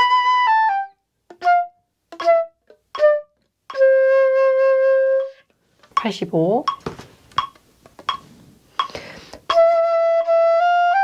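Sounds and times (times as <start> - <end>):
flute playing: 0.0 - 5.5, 9.5 - 11.0.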